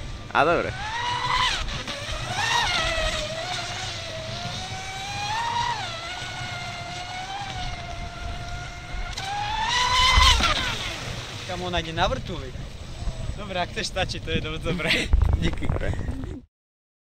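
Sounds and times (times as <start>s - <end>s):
rc boat electric motor whining: 0.4s - 11.7s.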